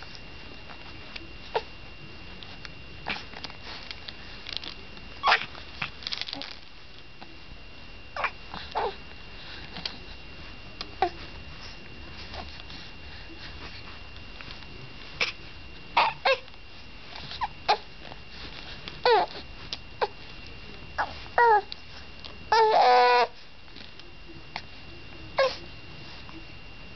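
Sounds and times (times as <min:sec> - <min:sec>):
baby cooing and squealing: 0:22.5 - 0:23.3.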